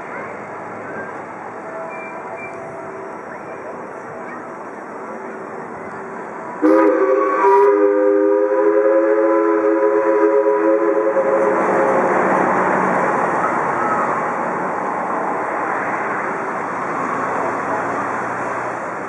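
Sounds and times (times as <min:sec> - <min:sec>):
steam whistle chord blast: 0:06.6 - 0:12.1.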